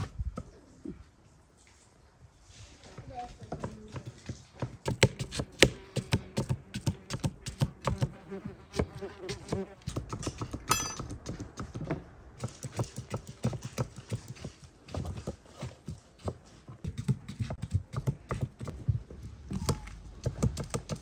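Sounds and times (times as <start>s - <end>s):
knives chopping on wooden boards: 3.5s - 8.1s, 9.3s - 21.0s.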